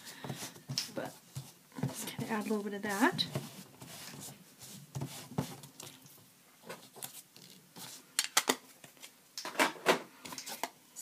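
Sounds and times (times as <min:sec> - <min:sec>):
ink pad scuffing on paper: 0:00.2 - 0:05.9.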